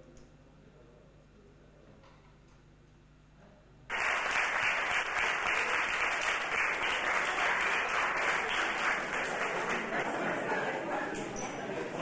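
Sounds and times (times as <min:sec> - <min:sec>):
audience applauding: 0:03.9 - 0:11.1.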